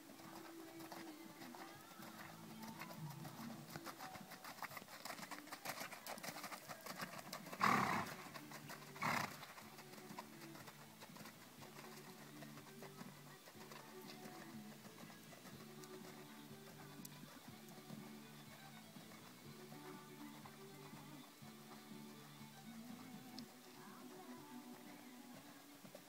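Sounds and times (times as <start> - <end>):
hooves striking sand: 0.0 - 26.0.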